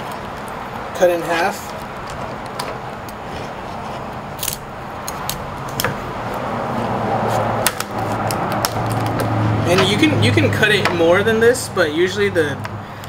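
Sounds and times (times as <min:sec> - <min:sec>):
steady background noise: 0:00.0 - 0:13.0
knife cracking crab shell: 0:04.4 - 0:05.9.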